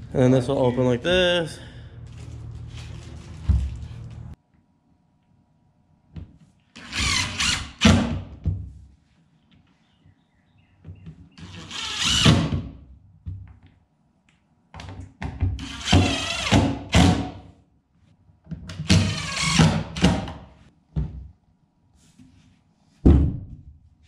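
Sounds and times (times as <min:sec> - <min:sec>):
cordless drill driving screws: 0:06.8 - 0:07.8, 0:15.6 - 0:17.0, 0:18.8 - 0:20.0.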